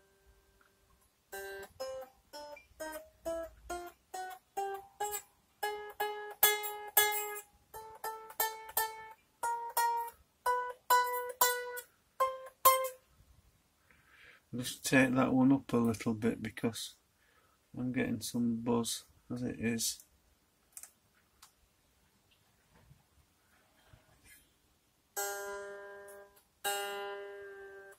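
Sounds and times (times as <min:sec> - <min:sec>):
electric guitar notes plucked: 0:01.3 - 0:13.0, 0:25.2 - 0:27.9
guitar string fret buzz: 0:25.2 - 0:27.9.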